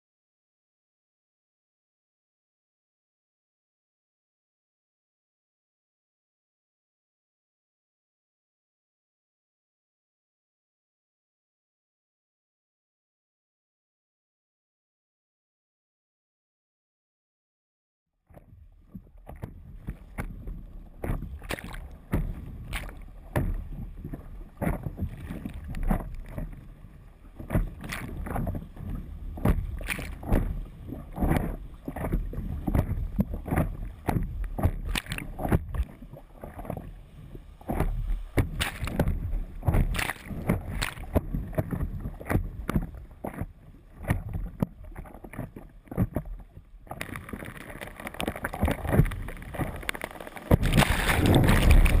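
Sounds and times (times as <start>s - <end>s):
water splashing against paddleboard: 18.3s - 52.0s
whitewater rushing: 50.6s - 52.0s.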